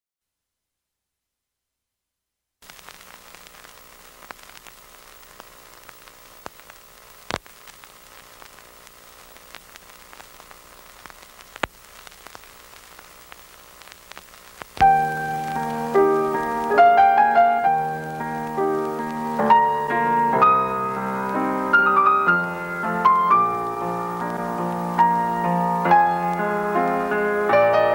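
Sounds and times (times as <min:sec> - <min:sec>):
low hiss with hum: 0:02.6 - 0:27.9
scattered crackles: 0:02.6 - 0:27.9
piano music: 0:14.8 - 0:27.9.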